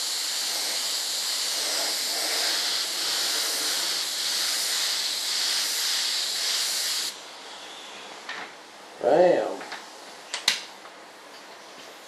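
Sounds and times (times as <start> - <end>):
paint spray gun hissing: 0.0 - 7.2.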